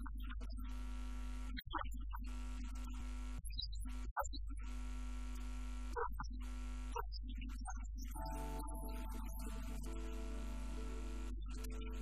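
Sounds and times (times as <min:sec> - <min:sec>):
electrical mains hum: 0:08.1 - 0:12.0
music tones: 0:08.1 - 0:12.0.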